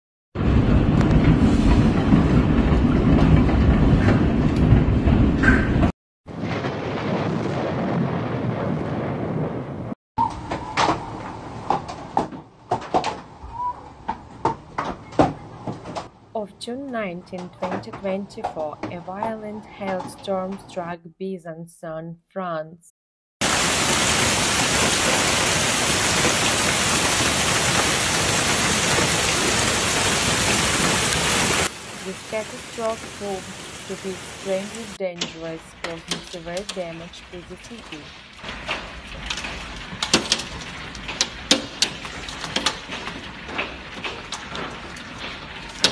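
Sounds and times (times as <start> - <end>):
roar of hailstones pelting: 23.4 - 35.0, 38.2 - 45.9
sharp clicks of hailstones striking: 23.4 - 35.0, 37.8 - 45.9.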